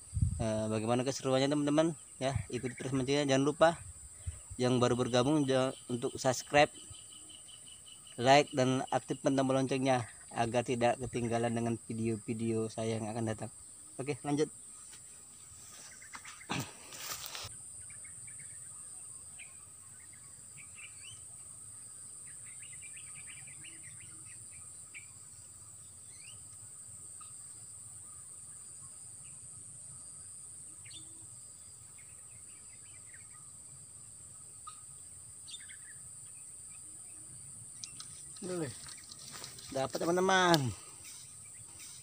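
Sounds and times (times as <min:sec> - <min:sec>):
bird chirps: 0:15.6 - 0:21.3, 0:22.2 - 0:25.2, 0:25.8 - 0:26.6, 0:30.7 - 0:31.2, 0:34.6 - 0:42.0
high-pitched insect drone: 0:15.6 - 0:42.0.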